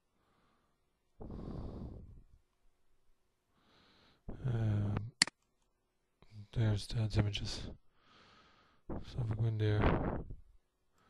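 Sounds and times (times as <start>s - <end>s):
man breathing out heavily: 0.2s - 2.2s, 7.9s - 8.9s.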